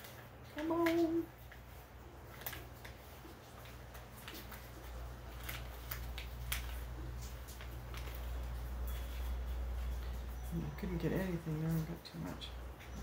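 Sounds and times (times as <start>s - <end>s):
low steady hum: 0.0s - 13.0s
plastic bottle clicks and crackles: 3.6s - 8.6s.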